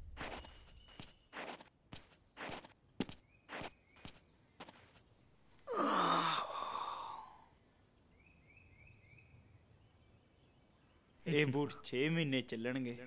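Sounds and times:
man sighing heavily: 0:05.6 - 0:07.5.

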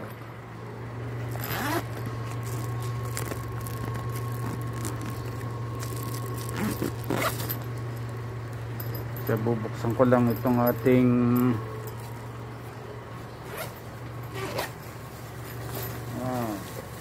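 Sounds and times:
steady low hum: 0:00.0 - 0:17.0
phone rustling against clothing: 0:01.3 - 0:08.2.

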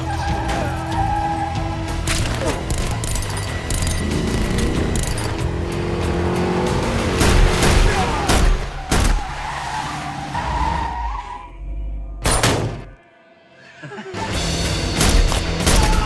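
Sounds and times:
tires skidding and squealing: 0:00.0 - 0:02.1, 0:06.9 - 0:11.7
car engine running hard: 0:02.9 - 0:08.4.

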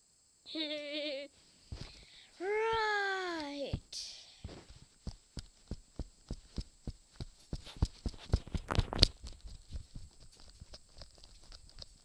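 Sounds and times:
handling noise knocks and bumps: 0:03.7 - 0:12.0.

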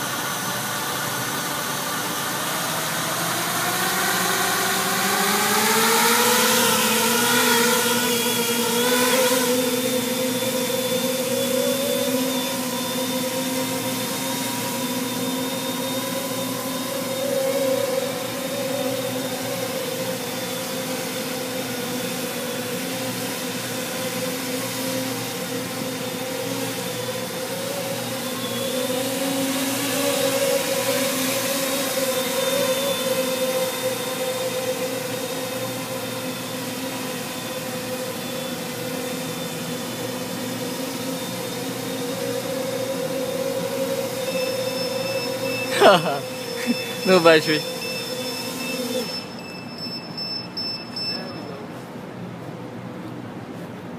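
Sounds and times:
drone propellers buzzing: 0:00.0 - 0:49.4.

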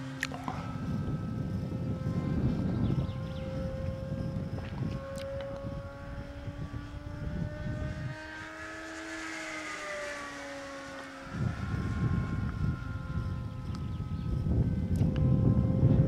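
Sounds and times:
model plane engine droning: 0:00.0 - 0:16.0
wind buffeting microphone: 0:00.0 - 0:16.0.

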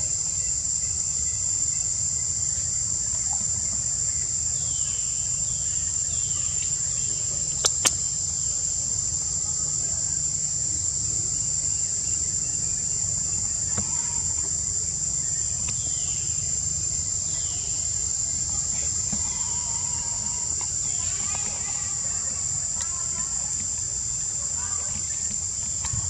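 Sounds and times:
insects droning: 0:00.0 - 0:26.0
sharp clicks: 0:07.6 - 0:08.0.

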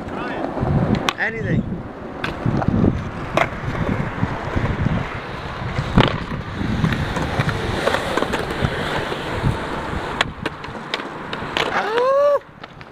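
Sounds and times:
skateboard wheels rolling on concrete: 0:00.0 - 0:12.9
skateboard clacking on concrete ledge: 0:10.2 - 0:12.9.

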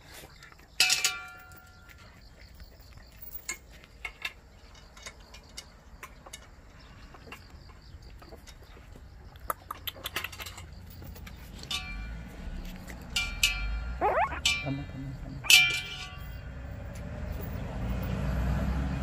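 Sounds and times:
puppies stirring on a mat: 0:01.4 - 0:11.7
puppy high cry: 0:14.0 - 0:14.7.

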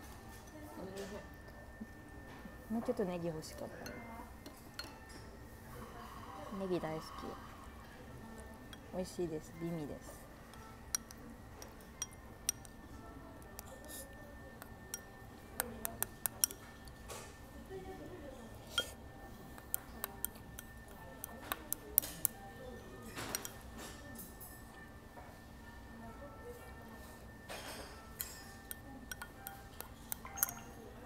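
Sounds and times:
tableware clinking: 0:03.6 - 0:05.4, 0:10.4 - 0:17.4, 0:18.6 - 0:24.8, 0:27.4 - 0:31.0.

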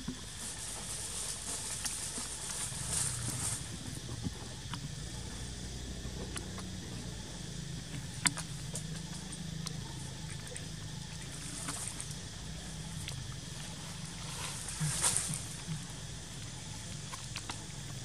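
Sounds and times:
steady low rumble: 0:00.0 - 0:18.0
dry leaves crackling: 0:00.4 - 0:04.0, 0:12.8 - 0:15.8.

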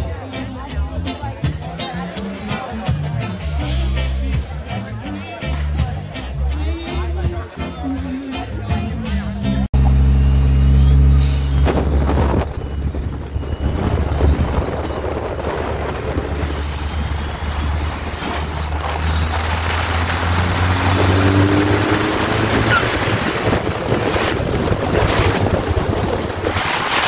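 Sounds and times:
car engine drone: 0:09.2 - 0:27.0
wind rush: 0:11.7 - 0:27.0.

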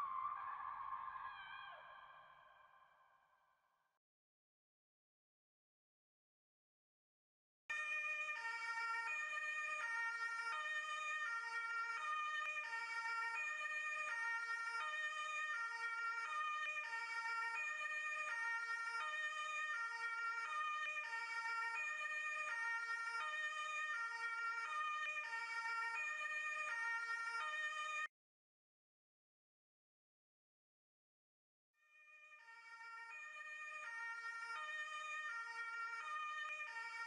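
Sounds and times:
two-tone ambulance siren: 0:00.0 - 0:03.2, 0:07.7 - 0:28.1, 0:31.8 - 0:37.0.

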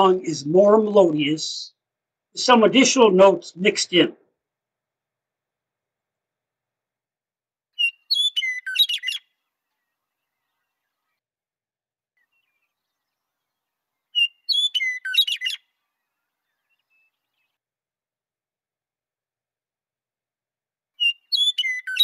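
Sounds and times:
meadowlark singing: 0:07.8 - 0:09.3, 0:12.2 - 0:17.6, 0:21.0 - 0:22.0.

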